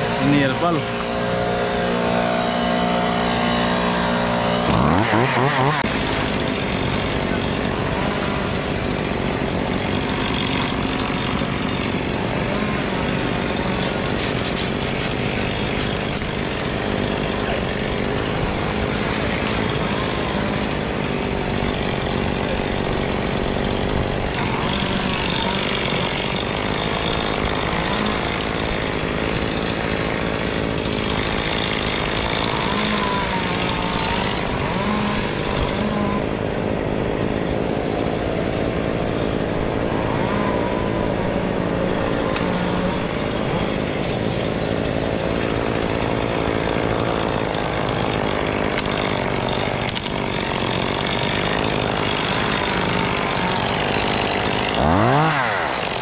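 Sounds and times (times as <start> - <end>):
chainsaw revving: 0.0 - 56.0.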